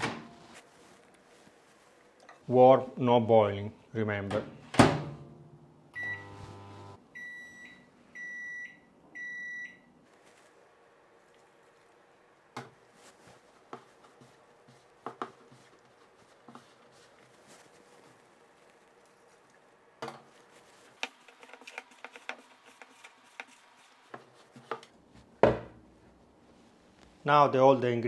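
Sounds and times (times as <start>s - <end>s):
soft handling of dough: 0.4s - 2.6s, 9.2s - 28.0s
microwave oven humming: 5.9s - 7.0s
microwave beeps: 6.0s - 9.9s.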